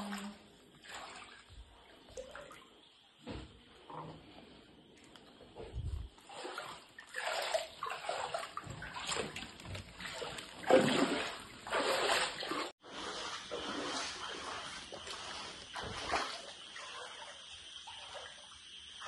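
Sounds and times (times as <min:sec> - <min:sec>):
feet wading through water: 0:00.0 - 0:02.7, 0:05.6 - 0:17.3.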